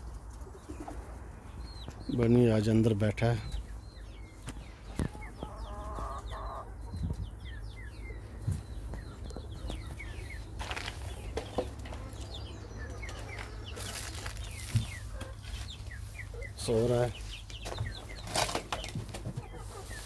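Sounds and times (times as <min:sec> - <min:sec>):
chicks peeping: 0:00.0 - 0:20.0
hen calling: 0:03.4 - 0:06.9.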